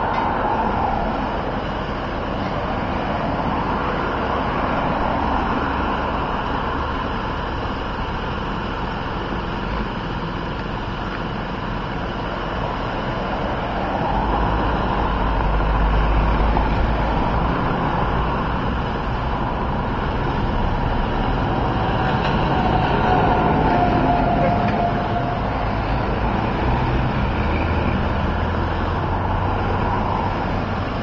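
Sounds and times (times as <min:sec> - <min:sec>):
road traffic: 0:00.0 - 0:31.0
heavy vehicle rumbling past: 0:11.8 - 0:31.0.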